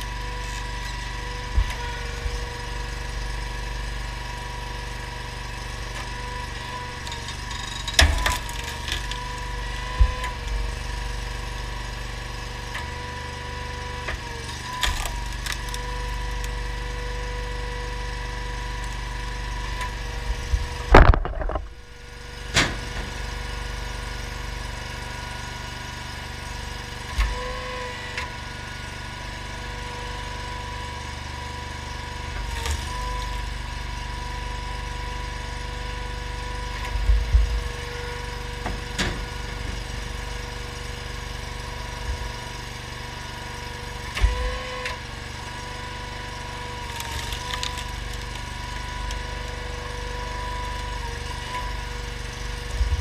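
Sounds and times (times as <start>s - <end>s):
engine and hydraulic pump running: 0.0s - 53.0s
wood cracking and knocking: 20.3s - 22.9s.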